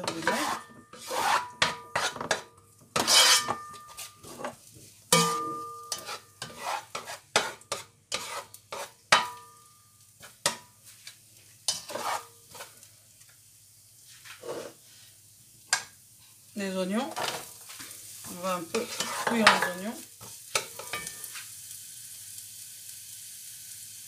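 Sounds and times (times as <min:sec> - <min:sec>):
spatula scraping and knocking a pan: 0:00.0 - 0:12.8, 0:17.1 - 0:21.5
garlic sizzling in oil: 0:00.0 - 0:24.0
pan ringing: 0:05.2 - 0:05.9.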